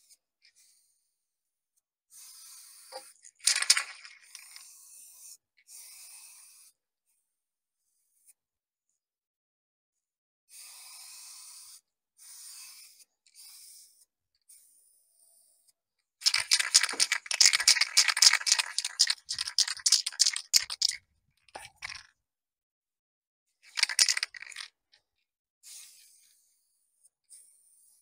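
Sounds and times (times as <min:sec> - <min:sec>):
spray paint can hissing: 0:16.2 - 0:21.0, 0:23.7 - 0:24.7
dense crackling and scraping: 0:16.3 - 0:21.0, 0:23.7 - 0:24.7.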